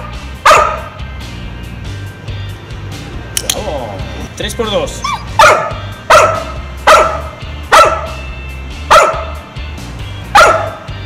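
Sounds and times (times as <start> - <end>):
dog barking: 0.4 - 1.0, 5.1 - 8.2, 8.9 - 9.4, 10.3 - 10.9.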